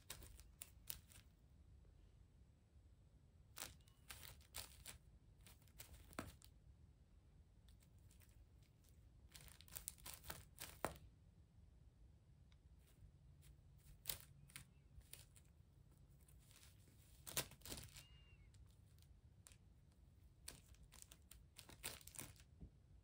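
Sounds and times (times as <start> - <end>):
plastic bag crinkling: 0.0 - 1.3, 3.6 - 6.5, 9.3 - 11.0, 13.4 - 15.6, 16.2 - 19.6, 20.4 - 22.5.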